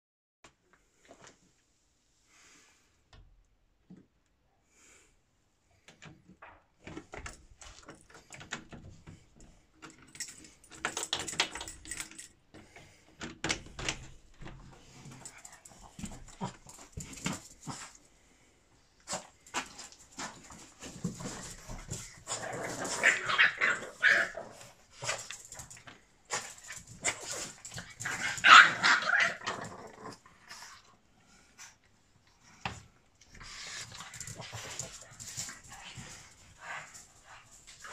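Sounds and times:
claws clicking on tile: 9.8 - 12.4
dogs yipping and barking: 22.7 - 24.6, 27.2 - 29.4.

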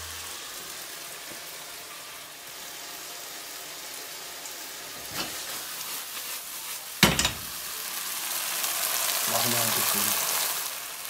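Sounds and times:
frying pan sizzling: 0.0 - 11.0.

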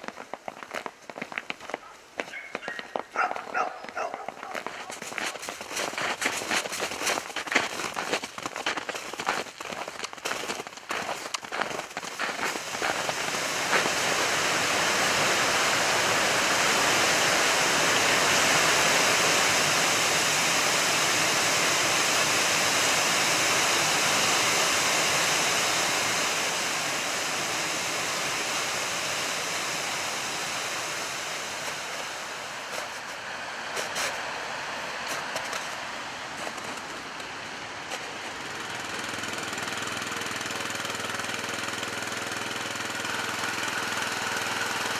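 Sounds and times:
footsteps crunching in snow: 0.0 - 14.9, 31.6 - 38.6
river rushing: 4.5 - 44.9.

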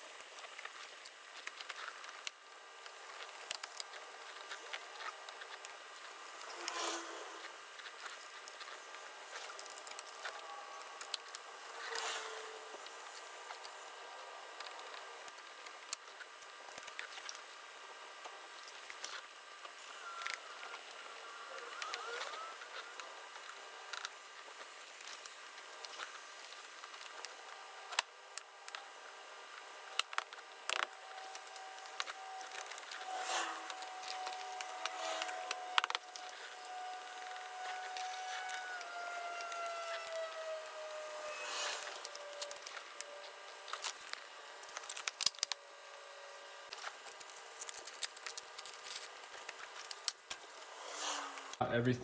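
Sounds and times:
rustling of wiring and trim: 29.9 - 45.6, 46.7 - 50.6.

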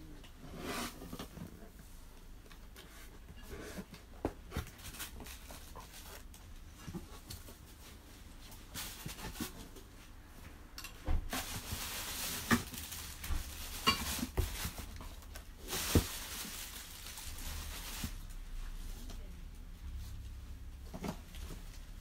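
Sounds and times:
cardboard packaging rustling: 4.3 - 9.8, 11.3 - 18.5.

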